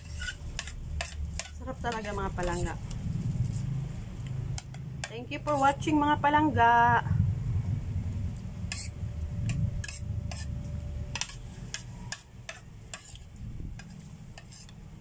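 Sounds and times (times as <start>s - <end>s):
fork scraping a ceramic plate: 0.0s - 2.8s, 5.4s - 5.8s, 8.7s - 14.8s.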